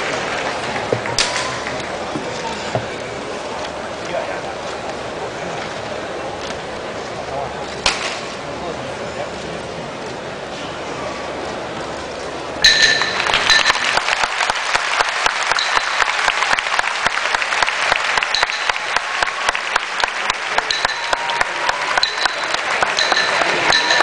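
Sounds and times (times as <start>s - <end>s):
crowd clapping: 0.0s - 3.0s, 12.7s - 24.0s.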